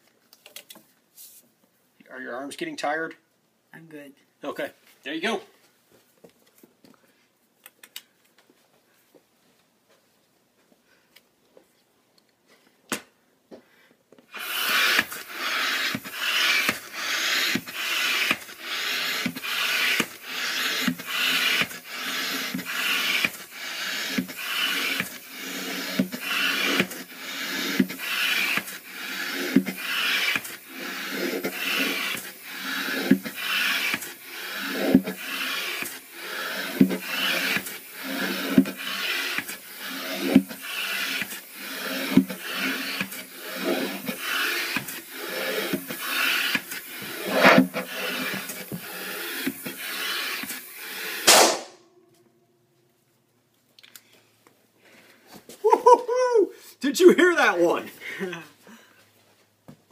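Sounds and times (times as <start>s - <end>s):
hand air pump strokes: 14.3s - 51.6s.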